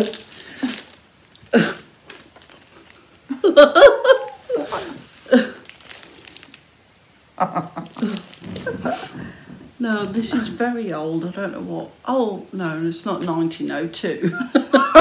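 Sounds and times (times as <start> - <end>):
women laughing: 3.3 - 5.4, 7.4 - 9.4, 14.2 - 15.0.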